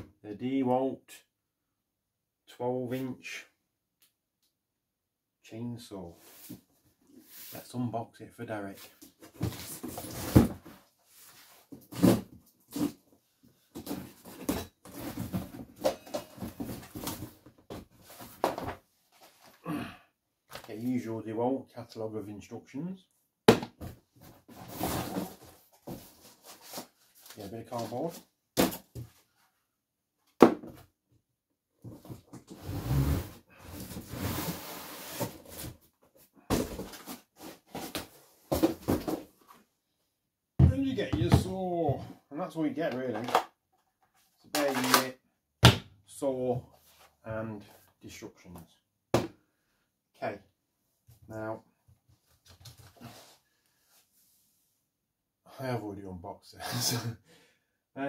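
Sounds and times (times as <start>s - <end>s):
cardboard knocks and scraping: 36.5s - 39.3s.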